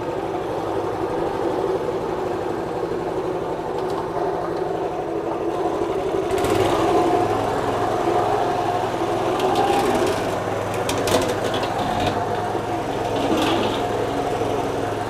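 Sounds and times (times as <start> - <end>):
stone grinding machine running: 6.3 - 14.7.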